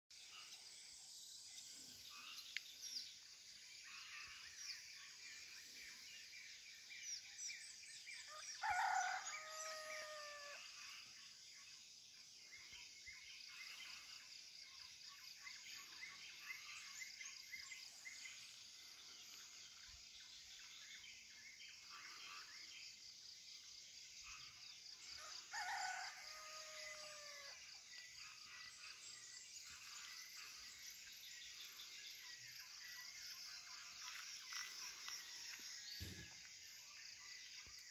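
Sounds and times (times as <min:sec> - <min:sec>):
insects chorus: 0:00.2 - 0:37.9
rooster crowing: 0:08.6 - 0:10.6, 0:25.2 - 0:27.6.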